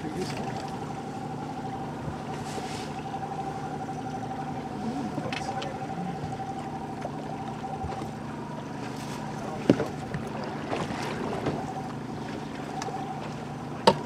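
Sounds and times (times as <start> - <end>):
light knocks in boat: 0.0 - 0.8, 5.2 - 14.0
outboard motor running: 0.0 - 14.0.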